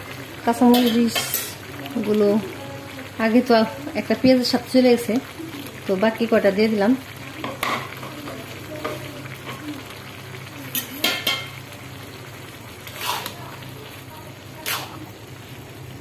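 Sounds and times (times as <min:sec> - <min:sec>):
faint sizzling: 0:00.0 - 0:16.0
metal spatula scraping a metal pan: 0:12.9 - 0:13.4.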